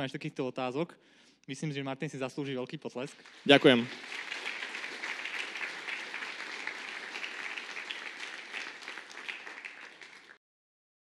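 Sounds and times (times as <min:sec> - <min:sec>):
audience applauding: 0:03.1 - 0:10.4.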